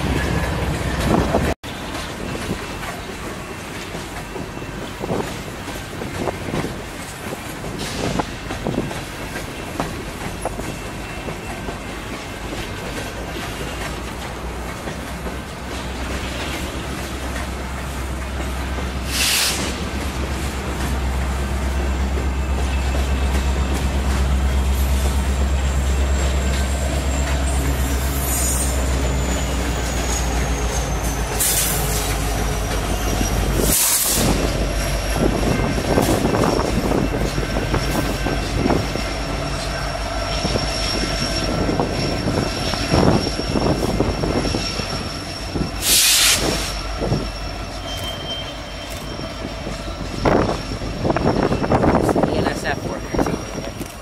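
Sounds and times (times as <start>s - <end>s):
freight train wheels rumbling: 0.0s - 54.0s
high wheel squeal: 16.0s - 54.0s.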